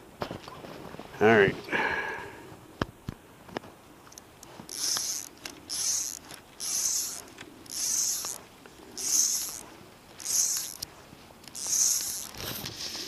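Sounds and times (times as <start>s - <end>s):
fly reel drag buzzing: 4.6s - 13.0s.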